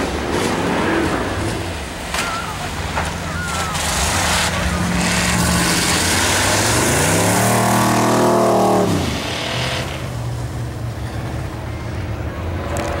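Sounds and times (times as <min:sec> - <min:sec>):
engines running steadily: 0:00.0 - 0:13.0
race car engine accelerating: 0:02.8 - 0:10.2.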